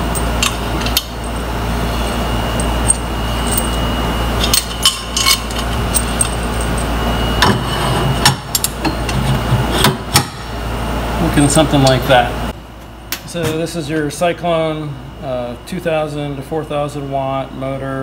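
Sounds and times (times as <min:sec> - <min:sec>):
steady low hum: 0:00.0 - 0:18.0
metal parts clinking and knocking: 0:02.5 - 0:03.8, 0:04.4 - 0:07.5.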